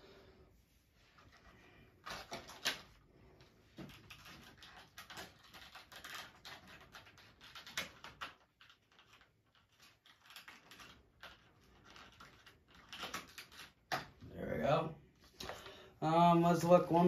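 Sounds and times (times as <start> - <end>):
clicks and rustles of handling: 1.0 - 14.3.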